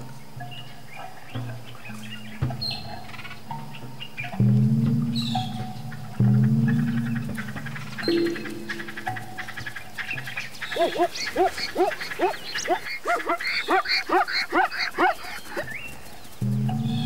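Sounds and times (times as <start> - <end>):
zebra barking: 5.2 - 17.0.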